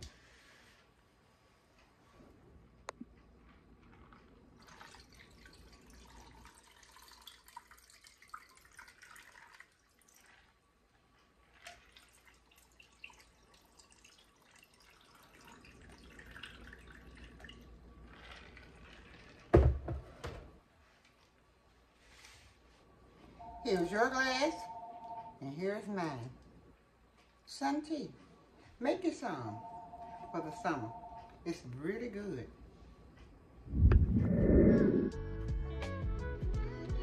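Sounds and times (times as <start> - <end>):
iced tea pouring over ice: 4.6 - 10.6, 11.5 - 19.5.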